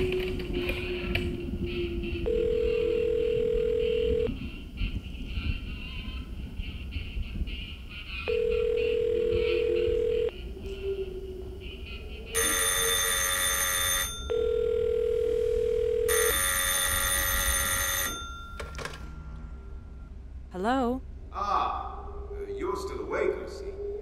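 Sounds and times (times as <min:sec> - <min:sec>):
steady telephone tone: 0:01.7 - 0:04.4, 0:08.3 - 0:10.4, 0:11.6 - 0:18.7
telephone bell ringing: 0:02.3 - 0:04.3, 0:08.3 - 0:10.3, 0:12.4 - 0:18.8.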